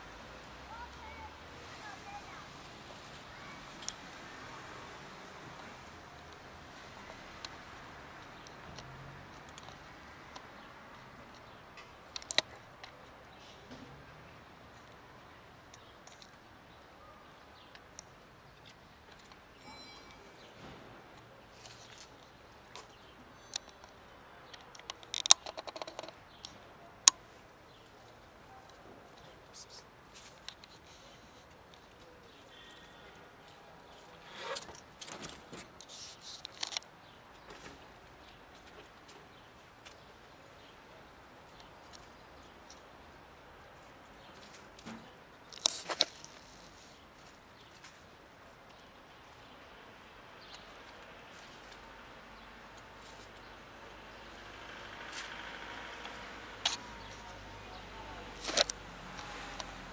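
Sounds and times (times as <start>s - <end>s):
passing motor vehicle rumble: 51.2s - 59.9s.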